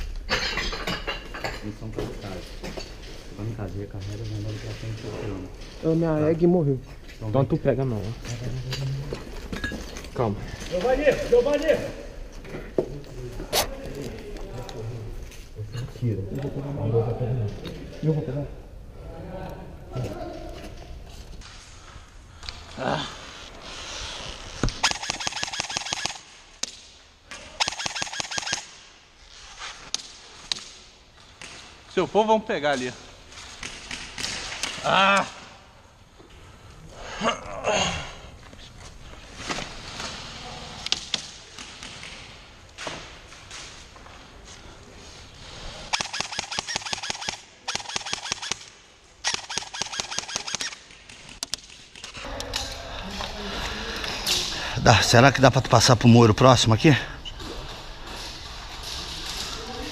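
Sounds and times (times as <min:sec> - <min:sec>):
sharp clicks: 0:24.7 - 0:26.7, 0:27.6 - 0:28.7, 0:45.9 - 0:52.2
airsoft rifle bursts: 0:24.8 - 0:26.3, 0:27.5 - 0:28.7, 0:45.9 - 0:50.9.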